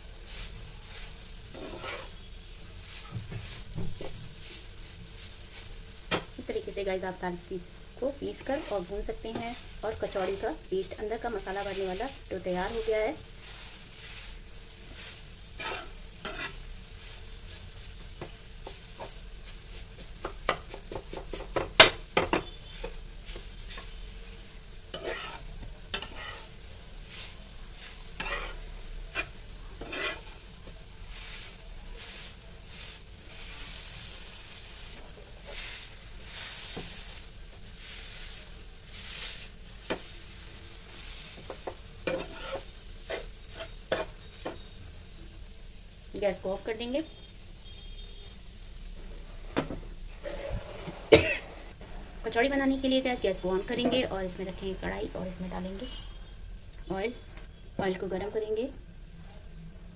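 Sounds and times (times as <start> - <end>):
food sizzling: 0.0 - 59.9
metal spatula scraping pan: 0.9 - 3.1, 11.3 - 16.7, 24.9 - 30.4, 40.9 - 44.7, 49.3 - 51.6.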